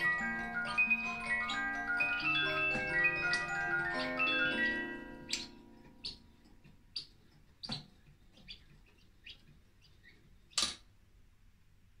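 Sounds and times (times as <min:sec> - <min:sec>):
mechanical bird chirps: 0:00.0 - 0:06.3.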